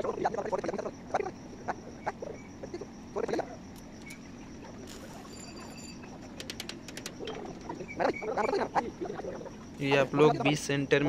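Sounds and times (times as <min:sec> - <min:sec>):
small metal clicks: 0:06.2 - 0:07.6.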